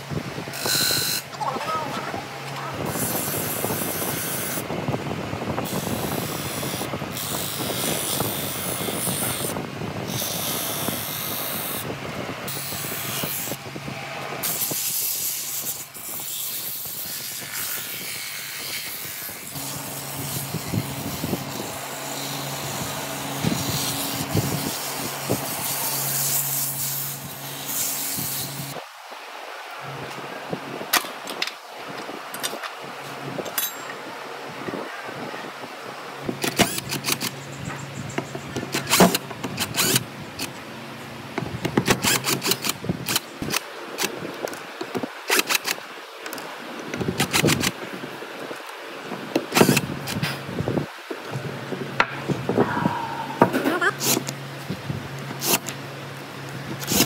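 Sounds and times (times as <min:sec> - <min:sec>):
power tool rasping wood: 0:14.4 - 0:28.8.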